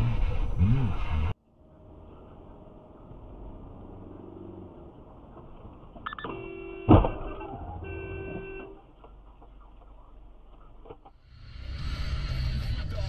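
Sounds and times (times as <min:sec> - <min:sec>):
low road noise: 0:00.0 - 0:13.0
car crash: 0:06.8 - 0:07.9.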